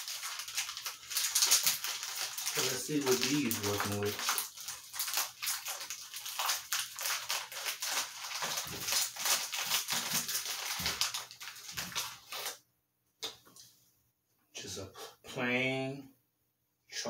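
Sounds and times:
plastic wrapper crinkling: 0.0 - 12.6.

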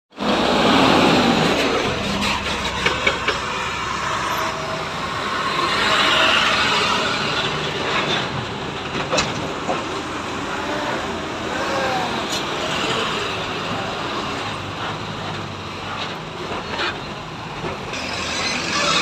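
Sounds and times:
heavy diesel engines running: 0.1 - 19.0.

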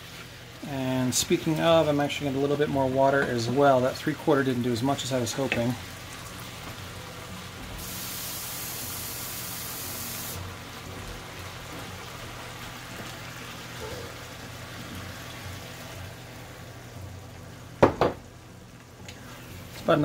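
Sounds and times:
kitchen tap running: 1.2 - 16.4
meat sizzling in a skillet: 5.0 - 20.0
wooden spoon knocking on pan: 17.8 - 18.2.

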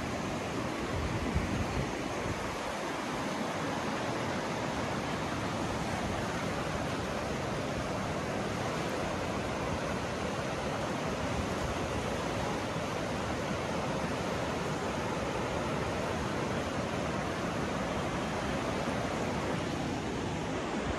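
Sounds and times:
river rushing over stones: 0.0 - 20.9.

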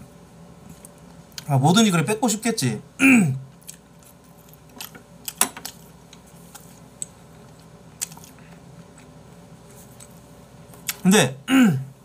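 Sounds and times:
faint room hum: 0.0 - 12.0
person chewing: 3.5 - 11.0.

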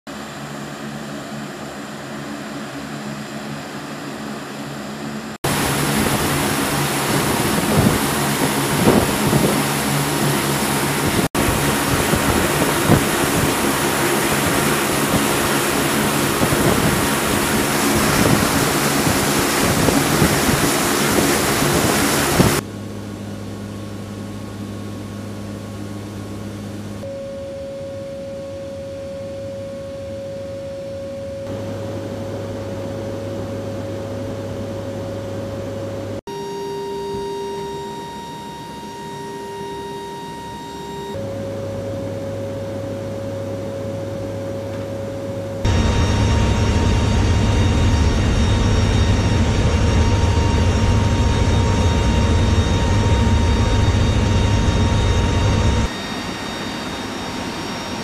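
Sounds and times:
aircraft engine hum: 0.1 - 27.1, 31.1 - 58.0
loud engine and airflow noise: 0.1 - 27.1, 31.2 - 58.0
steady tone: 36.2 - 58.0.

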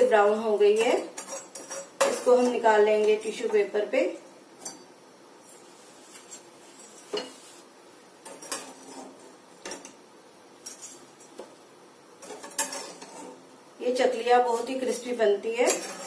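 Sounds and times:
metal utensils clinking on a pan: 0.7 - 2.6, 12.2 - 13.2, 15.6 - 16.0.

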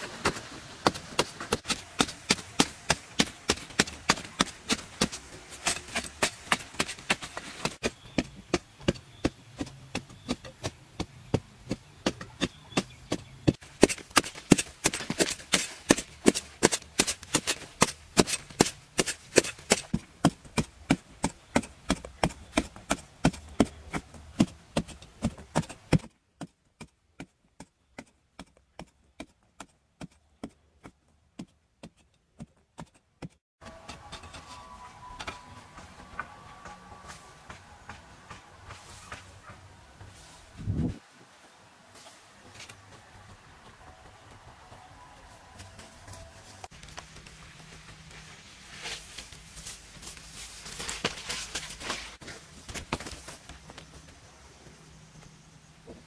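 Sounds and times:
hoe chopping into dry soil: 0.0 - 34.5.

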